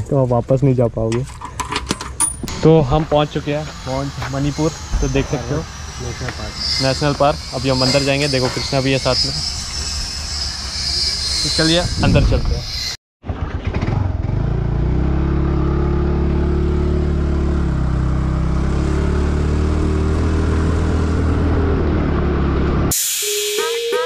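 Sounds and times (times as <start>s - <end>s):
steady higher tone: 2.4s - 13.0s, 22.9s - 24.0s.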